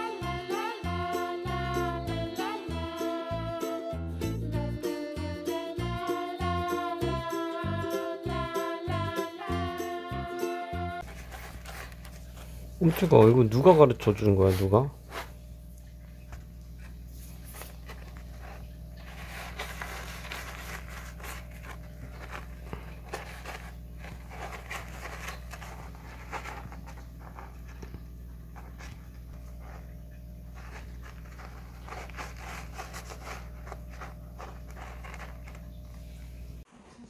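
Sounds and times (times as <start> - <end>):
steady low hum: 10.9 - 36.7
kitten scratching in cat litter: 11.0 - 36.6.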